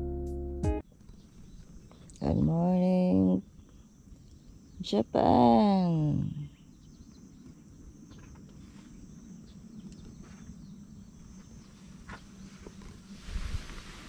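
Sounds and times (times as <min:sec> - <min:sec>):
soft rustles: 0:11.3 - 0:14.0.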